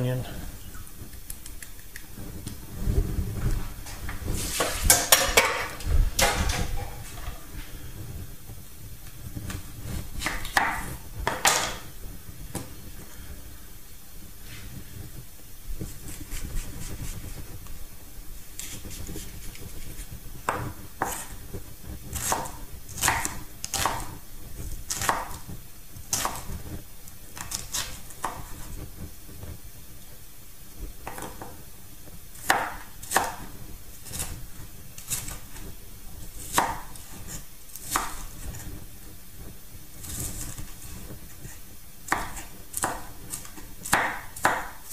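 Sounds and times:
knife chopping on wooden board: 0:10.2 - 0:11.8, 0:19.9 - 0:21.3, 0:22.1 - 0:24.1, 0:24.9 - 0:25.4, 0:31.0 - 0:31.5, 0:32.4 - 0:33.5, 0:36.5 - 0:37.1, 0:42.1 - 0:44.8.

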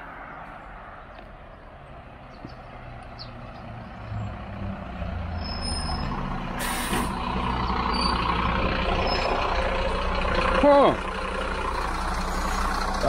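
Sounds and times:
truck engine rumbling: 0:00.0 - 0:13.0
air brakes hiss: 0:06.6 - 0:07.2.

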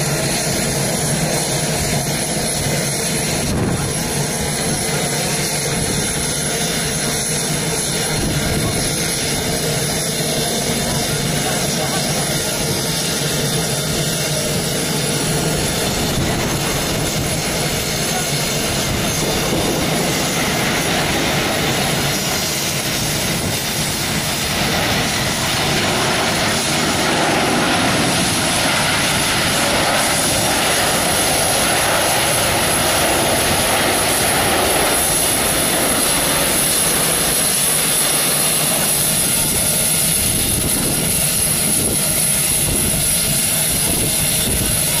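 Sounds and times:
jet engines rushing and rumbling: 0:00.0 - 0:45.0.

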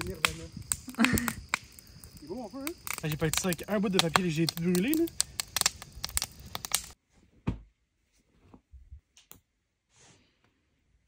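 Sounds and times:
wood fire crackling: 0:00.0 - 0:07.0
soft thump: 0:07.4 - 0:07.7.

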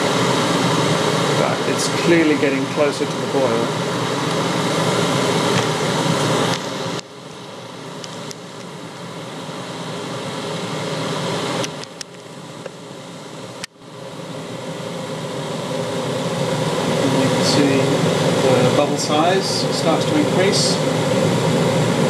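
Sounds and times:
electric kettle heating water: 0:00.0 - 0:22.0.

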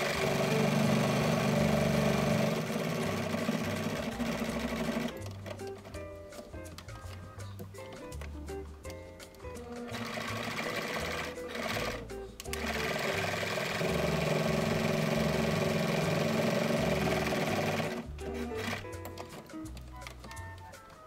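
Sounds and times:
sewing machine running: 0:00.0 - 0:06.0, 0:09.6 - 0:19.5.

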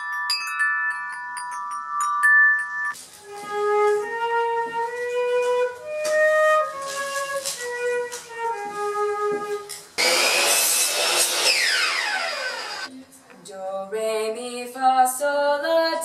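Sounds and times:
flute playing slow melody: 0:03.2 - 0:09.9
power saw starting up: 0:10.0 - 0:12.9.

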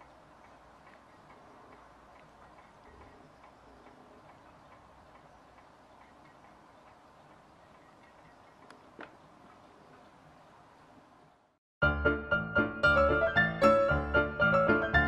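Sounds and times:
faint regular ticking: 0:00.0 - 0:08.9.

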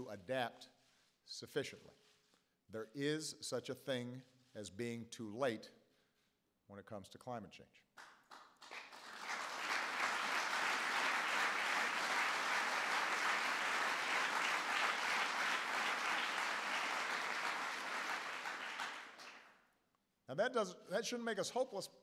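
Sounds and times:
audience applauding: 0:08.0 - 0:19.5.

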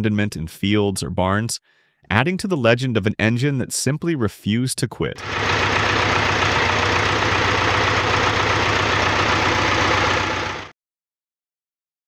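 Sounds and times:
diesel engine idling: 0:05.2 - 0:10.7.

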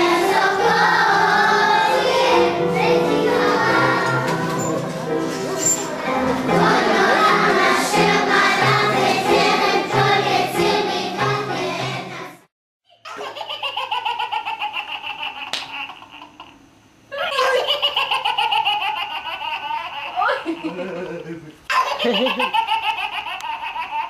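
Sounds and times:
children's choir singing: 0:00.0 - 0:12.5
toddler laughing: 0:12.9 - 0:24.0.

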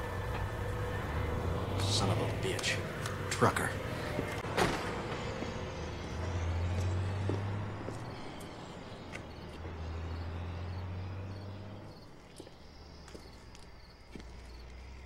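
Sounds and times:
low steady rumble: 0:00.0 - 0:06.2.

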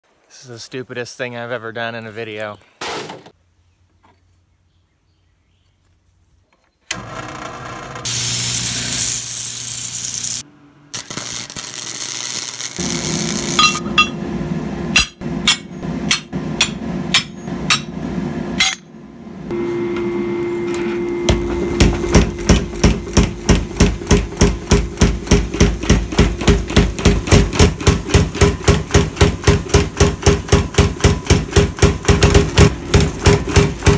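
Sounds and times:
irregular metal strikes: 0:12.8 - 0:19.0.

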